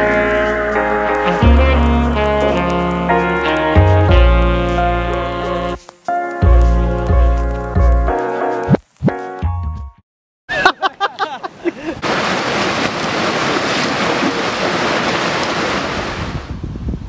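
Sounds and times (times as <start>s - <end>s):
music: 0.0s - 10.0s
stream water flowing: 12.0s - 16.4s
wind on microphone: 15.6s - 17.0s.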